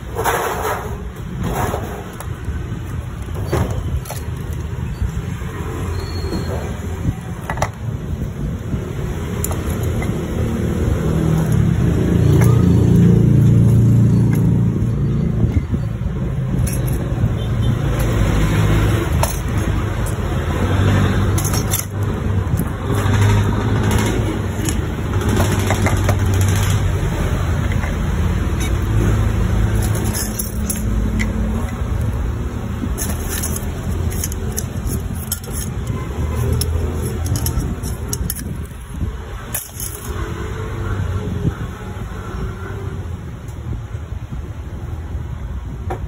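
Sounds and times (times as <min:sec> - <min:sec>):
plastic and metal parts clattering: 0:00.0 - 0:05.4, 0:16.5 - 0:17.2, 0:18.9 - 0:20.2, 0:21.0 - 0:32.2, 0:32.8 - 0:40.3.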